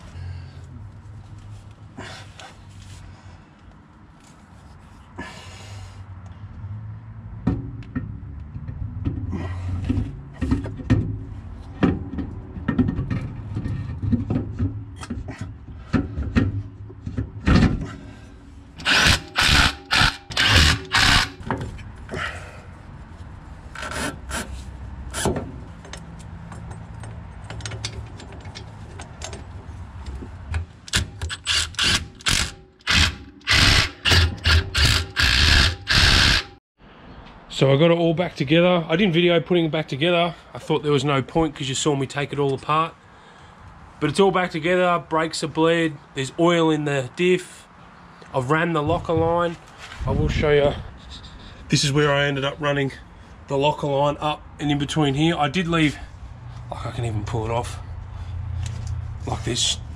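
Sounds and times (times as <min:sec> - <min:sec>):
metal clunks and scrapes: 0:07.4 - 0:19.1, 0:19.9 - 0:22.2
power tool bursts: 0:18.8 - 0:21.4, 0:30.9 - 0:36.6.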